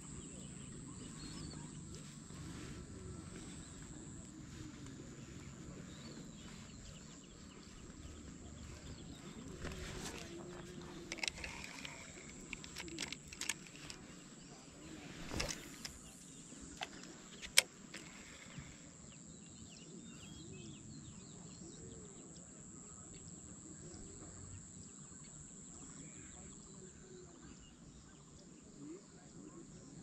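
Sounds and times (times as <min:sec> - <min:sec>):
quiet lakeside background: 0:00.0 - 0:30.0
fishing reel clicks and knocks: 0:09.6 - 0:14.0, 0:15.2 - 0:18.8.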